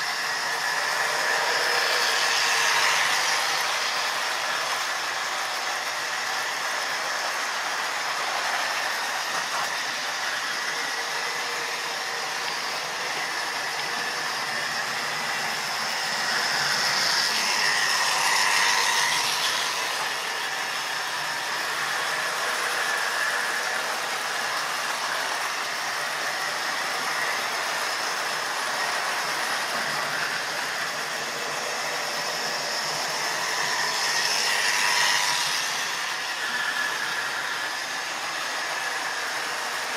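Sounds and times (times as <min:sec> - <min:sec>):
model train motor whirring: 0:00.0 - 0:07.6, 0:08.2 - 0:25.8, 0:29.3 - 0:39.9.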